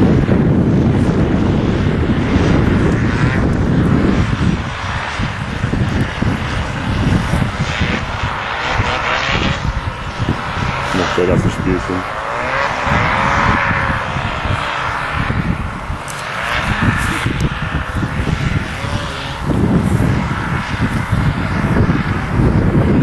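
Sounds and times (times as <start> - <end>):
paramotor engine and propeller: 0.0 - 23.0.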